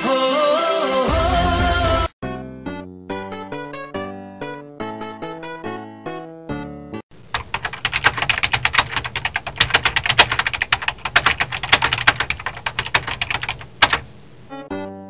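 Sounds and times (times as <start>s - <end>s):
laptop keyboard typing: 7.3s - 14.1s.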